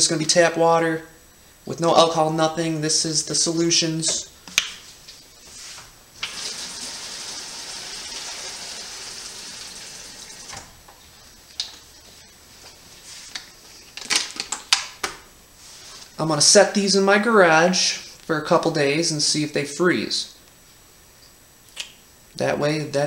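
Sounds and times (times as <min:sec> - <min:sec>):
tap water filling plastic bottle: 0:06.2 - 0:09.3.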